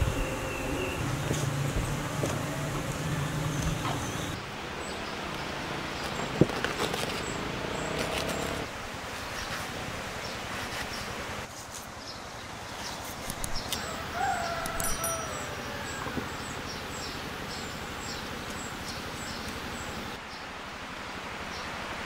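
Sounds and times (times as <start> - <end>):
birds chirping: 0.0 - 8.7, 12.0 - 20.5.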